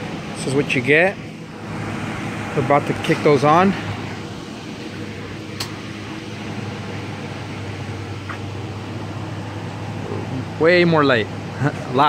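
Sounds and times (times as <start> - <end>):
pickup engine idling: 0.0 - 12.0
sharp click: 5.6 - 5.8.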